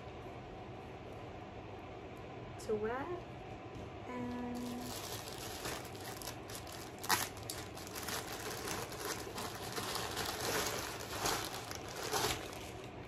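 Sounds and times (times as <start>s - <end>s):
plastic packaging crinkling: 4.5s - 13.0s.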